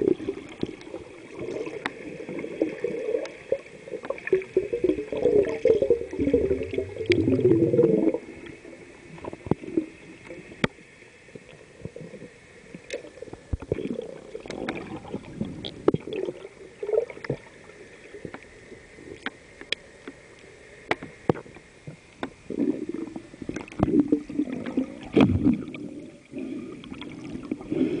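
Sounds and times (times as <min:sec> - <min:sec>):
gurgling bubbling water: 0:00.0 - 0:10.7, 0:11.4 - 0:18.4, 0:22.4 - 0:28.0
sharp clicks underwater: 0:01.5 - 0:02.0, 0:04.0 - 0:07.5, 0:09.2 - 0:12.0, 0:12.7 - 0:16.4, 0:19.1 - 0:22.5, 0:23.4 - 0:25.8.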